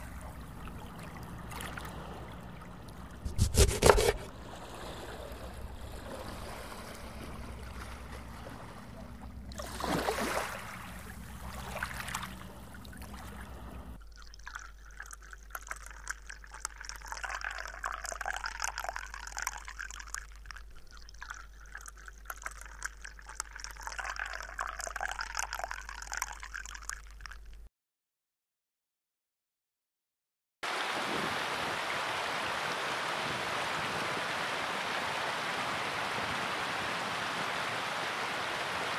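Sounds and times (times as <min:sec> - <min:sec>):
low steady hum: 0:00.0 - 0:27.7
water pouring into glass: 0:09.5 - 0:27.6.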